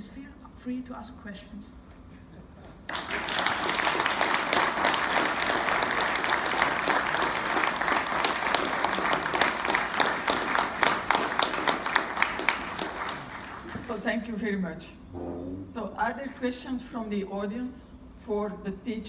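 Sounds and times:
audience applauding: 2.9 - 13.8.

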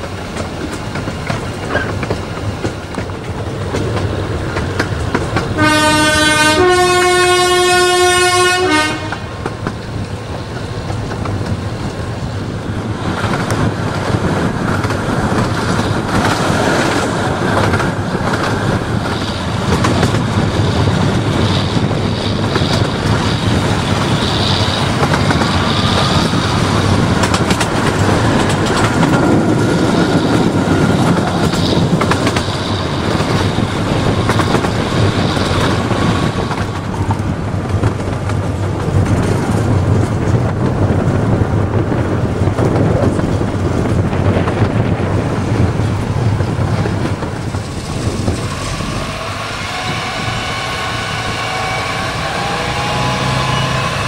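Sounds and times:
train wheels clattering on track: 0.0 - 54.0
locomotive whistle blasts: 5.6 - 9.2, 49.0 - 54.0.

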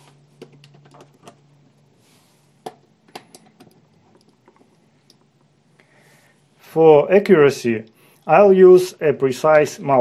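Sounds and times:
test probes clicking and tapping: 2.6 - 5.5.

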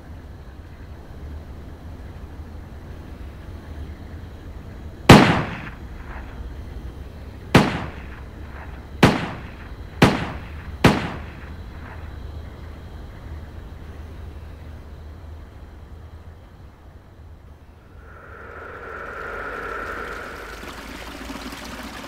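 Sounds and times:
pistol shots with echo: 5.1 - 5.7, 7.6 - 8.0, 9.0 - 11.5.

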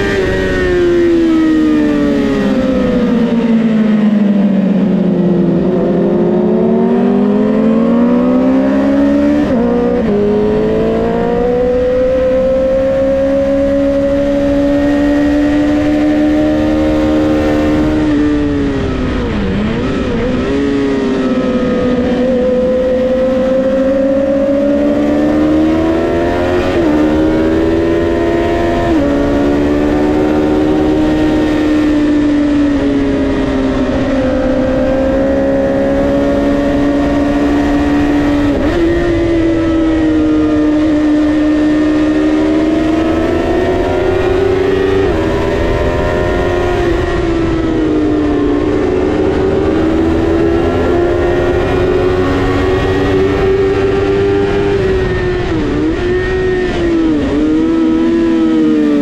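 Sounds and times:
motorcycle engine revving high: 0.0 - 59.0
wind and road noise: 0.0 - 59.0.

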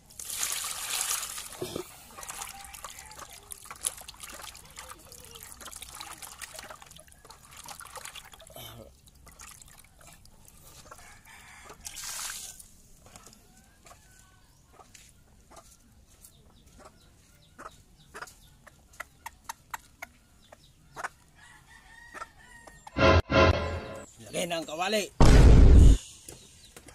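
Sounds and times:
water splash: 0.2 - 1.6
chickens clucking: 13.0 - 21.4.

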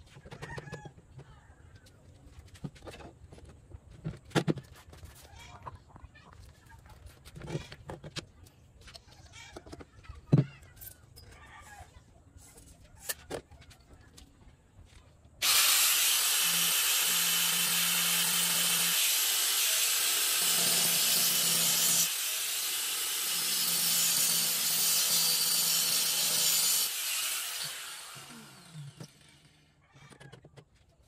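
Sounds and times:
angle grinder cutting metal pipe: 15.4 - 29.6.

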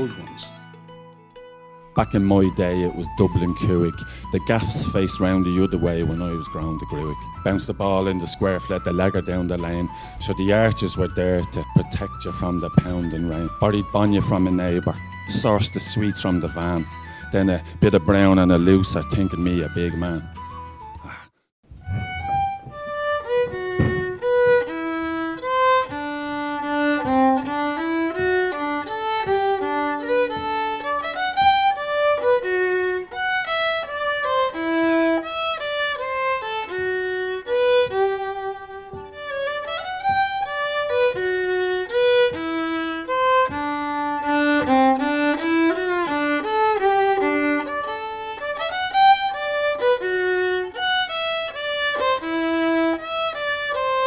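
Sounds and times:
solo violin melody: 0.0 - 21.1, 21.7 - 54.0.

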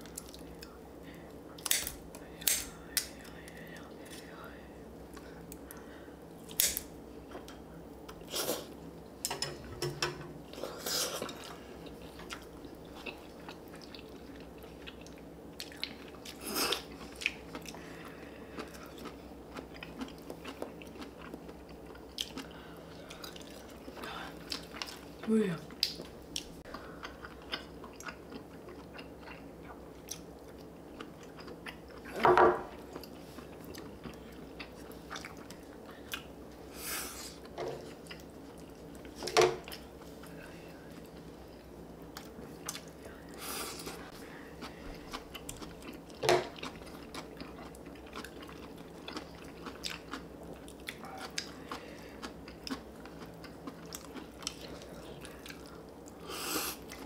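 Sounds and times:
close-up chewing: 10.5 - 36.3, 37.3 - 57.0.

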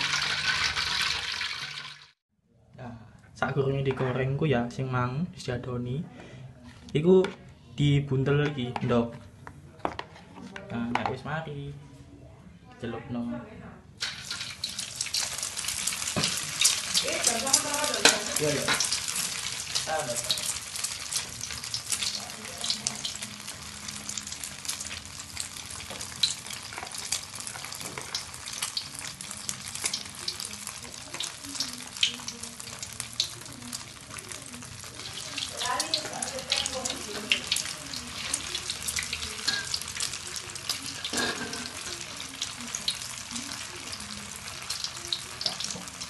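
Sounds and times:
crackers deep-frying in oil: 0.0 - 2.2, 14.0 - 46.0.

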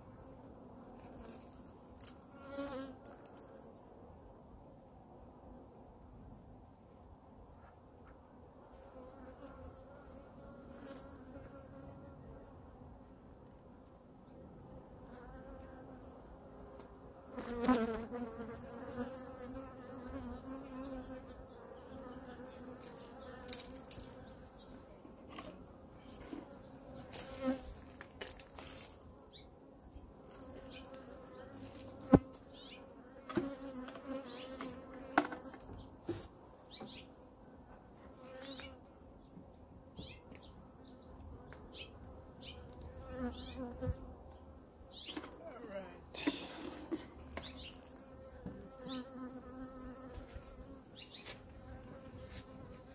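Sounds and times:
honey bees buzzing: 15.1 - 24.8, 26.2 - 29.0, 30.3 - 35.4, 40.9 - 45.8, 46.8 - 52.9.

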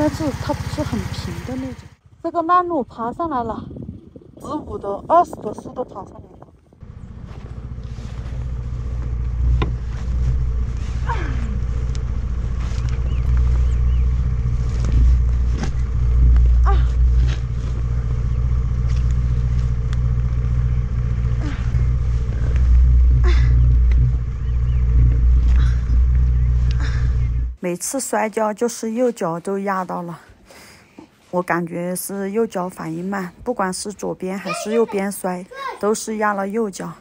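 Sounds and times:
motor scooter engine idling: 0.0 - 2.9, 6.8 - 27.6
knocks and scrapes: 7.1 - 27.6
woman straining vocally: 11.0 - 11.7, 23.2 - 23.7.

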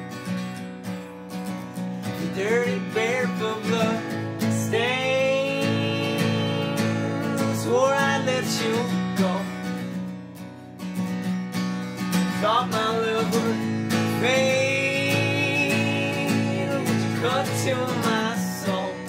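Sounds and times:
acoustic guitar strumming: 0.0 - 19.0
man and woman singing: 2.2 - 9.6, 12.4 - 19.0.

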